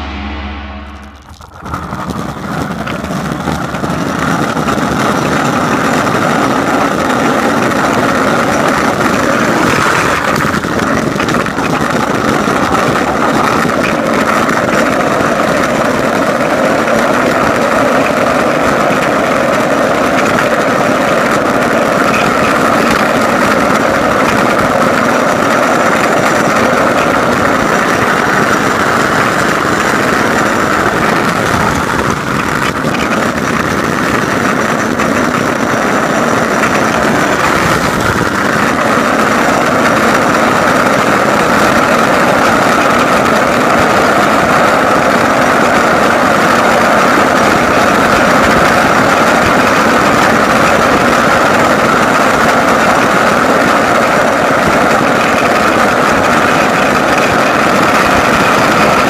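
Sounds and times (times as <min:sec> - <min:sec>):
wind rushing: 0:00.0 - 0:03.1
wheels rolling on asphalt: 0:01.2 - 0:59.0.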